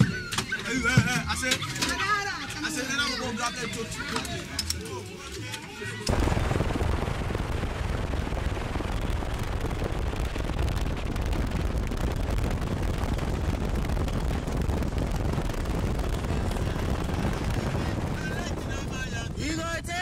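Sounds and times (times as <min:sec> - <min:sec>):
vehicle driving rumble: 0:06.1 - 0:18.9.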